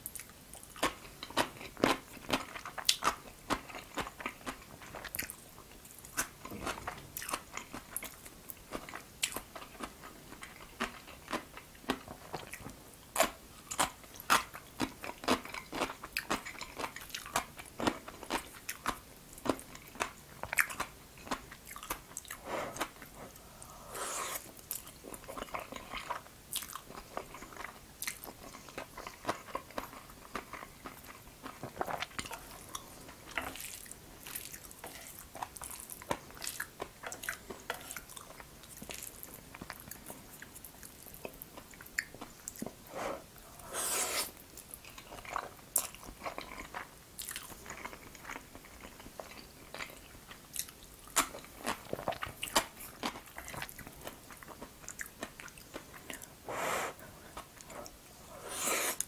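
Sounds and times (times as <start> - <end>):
chewing: 0.0 - 59.0
slurping noodles: 23.6 - 24.5, 42.9 - 44.4, 58.2 - 59.0.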